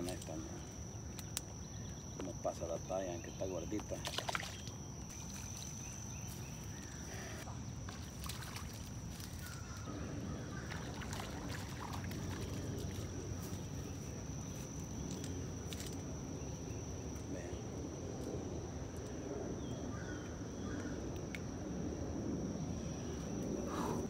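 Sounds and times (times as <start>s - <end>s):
high-pitched insect drone: 0.0s - 20.1s
small splash on water: 3.9s - 5.8s, 7.8s - 9.6s, 10.6s - 13.1s.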